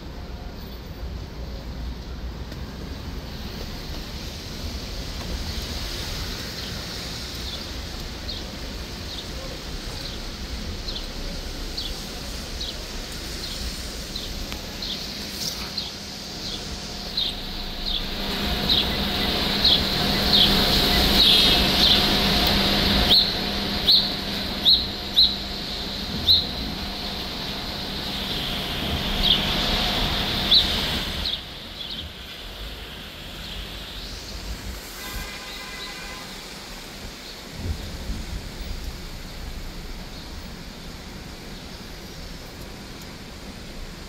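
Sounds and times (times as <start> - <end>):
heavy rain: 0.0 - 44.0
traffic on wet street: 0.0 - 44.0.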